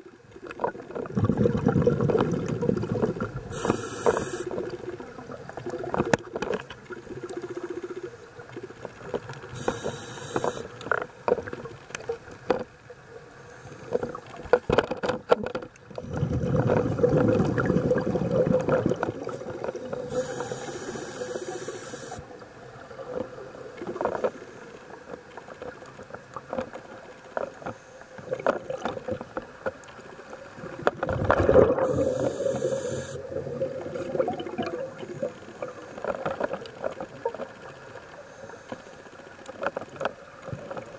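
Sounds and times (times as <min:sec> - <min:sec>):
exhaled bubbles rumbling: 0:00.4 - 0:03.8, 0:04.5 - 0:09.6, 0:15.9 - 0:20.6, 0:30.6 - 0:37.5
hissing regulator inhales: 0:03.5 - 0:04.5, 0:09.6 - 0:10.7, 0:20.1 - 0:22.2, 0:31.8 - 0:33.2
small clicks and knocks: 0:08.8 - 0:12.7, 0:13.8 - 0:16.0.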